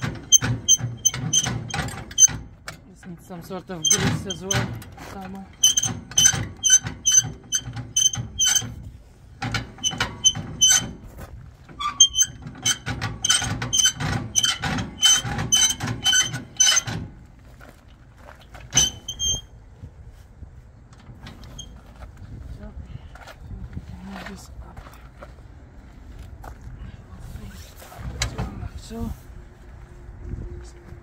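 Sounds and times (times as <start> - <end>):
jockey wheel mechanism squeaking: 0.0 - 11.1, 11.7 - 17.1, 18.7 - 19.6, 21.1 - 21.9.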